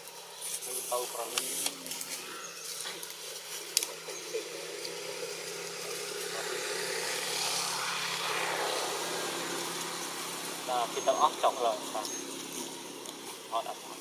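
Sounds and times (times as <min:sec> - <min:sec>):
vehicle engine running: 0:00.0 - 0:14.0
rush of noise: 0:05.0 - 0:13.6.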